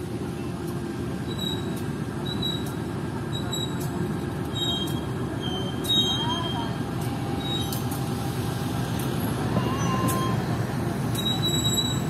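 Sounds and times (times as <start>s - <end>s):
locomotive engine rumble: 0.0s - 12.0s
wheels rolling on track: 0.0s - 12.0s
short high squeals: 4.5s - 6.8s, 9.6s - 10.5s, 11.2s - 12.0s.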